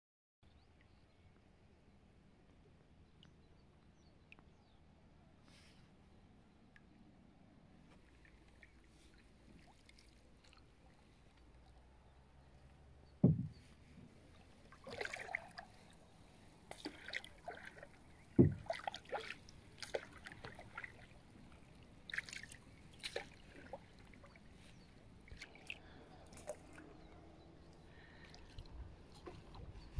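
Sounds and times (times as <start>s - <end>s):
paddle splashing in water: 7.9s - 11.3s, 13.2s - 27.1s
sharp low knocks: 13.2s - 13.7s, 18.4s - 18.7s.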